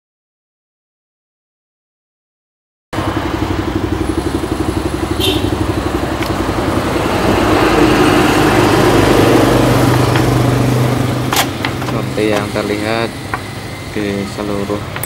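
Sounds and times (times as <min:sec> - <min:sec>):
motorcycle engine idling: 0:03.0 - 0:15.0.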